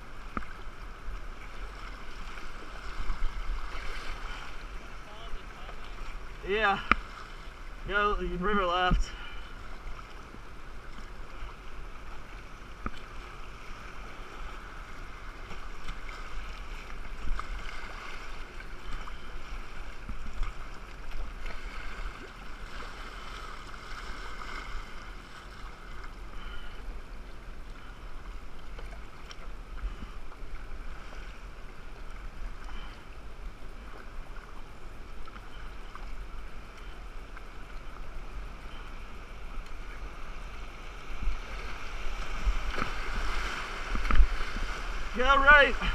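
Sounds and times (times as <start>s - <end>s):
river current rushing and lapping: 0.0s - 45.9s
paddle splashes and knocks: 15.3s - 26.8s, 41.1s - 45.9s.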